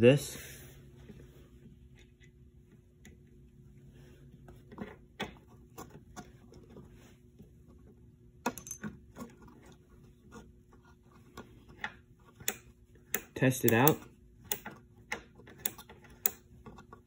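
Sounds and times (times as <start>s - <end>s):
small metal parts clicking: 8.5s - 8.9s.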